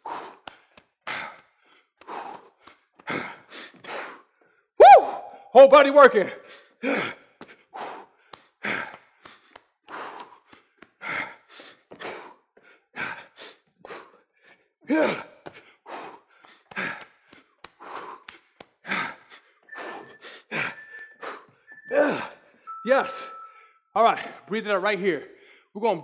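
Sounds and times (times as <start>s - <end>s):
man breathing hard: 0.0s - 5.5s, 6.4s - 24.5s, 25.3s - 25.8s
man grunting: 14.9s - 15.3s.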